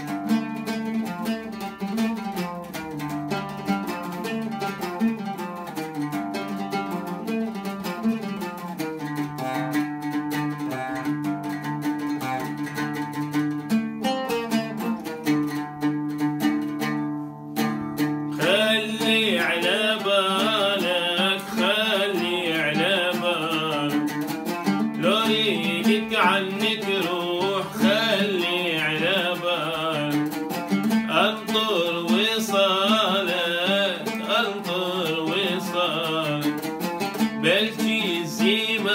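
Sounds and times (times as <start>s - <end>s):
oud plucked: 0.0s - 38.9s
man singing: 18.3s - 38.9s.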